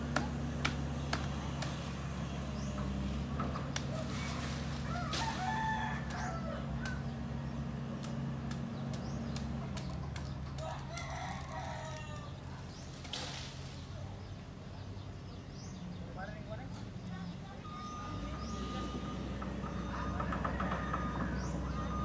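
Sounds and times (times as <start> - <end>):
excavator diesel engine running: 0.0 - 12.9, 13.9 - 22.0
rooster crowing: 4.7 - 7.6, 10.6 - 12.6, 19.7 - 22.0.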